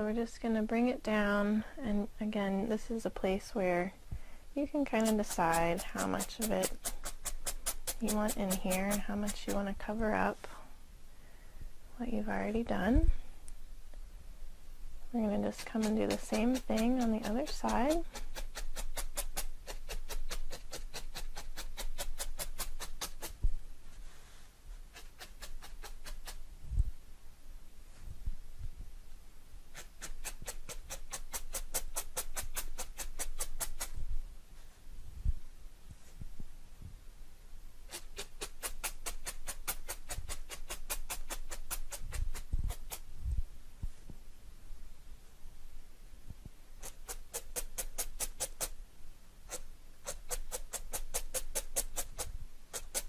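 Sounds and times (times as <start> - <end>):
felting needle ticking into foam: 4.8 - 9.6, 15.5 - 23.4.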